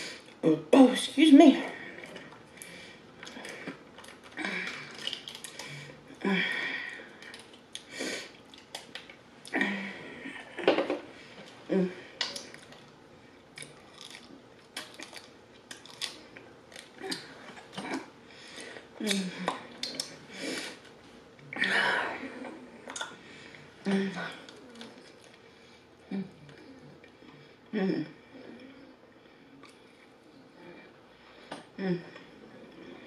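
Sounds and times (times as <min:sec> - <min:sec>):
mouth or throat sounds: 0:19.0 - 0:20.3.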